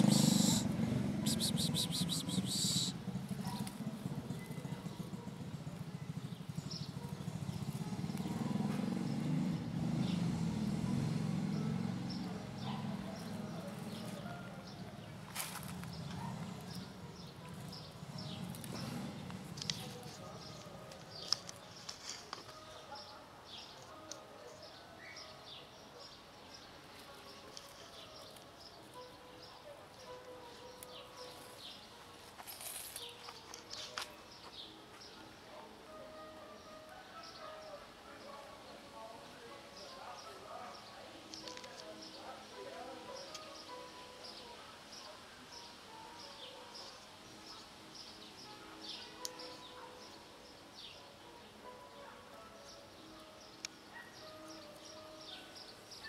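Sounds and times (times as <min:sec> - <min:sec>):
kitten purring: 0:00.0 - 0:05.9
small birds chirping: 0:00.0 - 0:09.4, 0:11.4 - 0:35.2.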